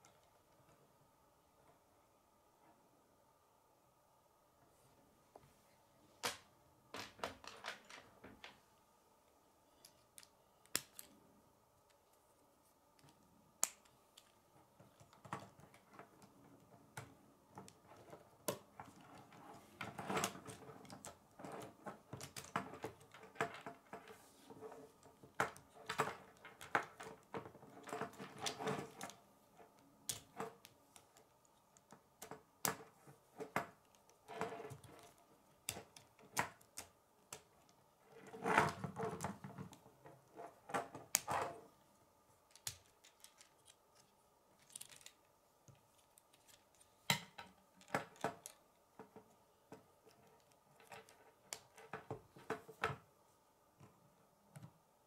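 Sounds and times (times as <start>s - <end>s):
plastic pieces clicking together: 42.5s - 47.2s.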